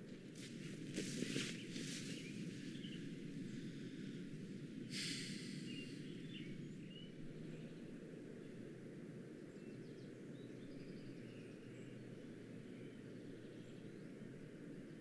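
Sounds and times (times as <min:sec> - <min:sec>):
low background rumble: 0:00.0 - 0:15.0
small birds chirping: 0:00.4 - 0:15.0
brief rush of noise: 0:04.9 - 0:05.7.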